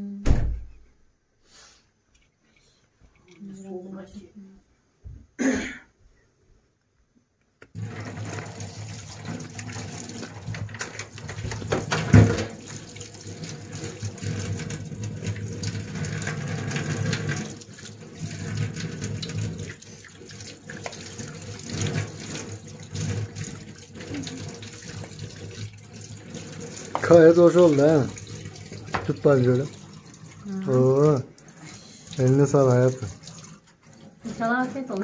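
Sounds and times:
water running from a tap: 7.8 - 35.0.

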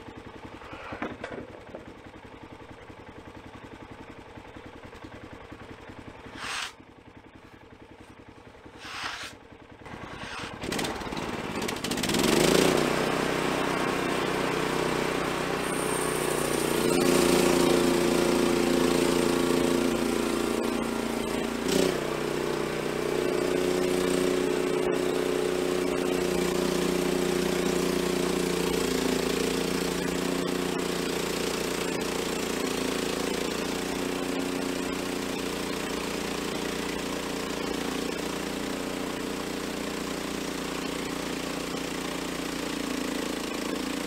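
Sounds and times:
small gasoline engine running: 0.0 - 44.0
band saw cutting log: 0.6 - 1.4, 6.3 - 6.8, 8.7 - 30.8.

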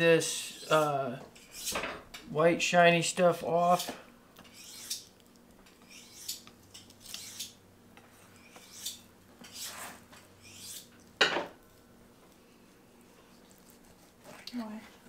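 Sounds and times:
knife scraping on cutting board: 0.5 - 1.9, 3.7 - 5.0, 5.8 - 10.9, 13.3 - 14.5.

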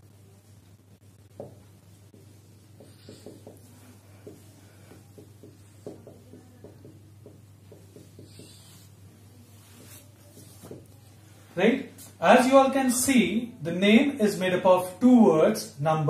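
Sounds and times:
steady low hum: 0.0 - 13.9
marker squeaking on whiteboard: 2.2 - 10.9.

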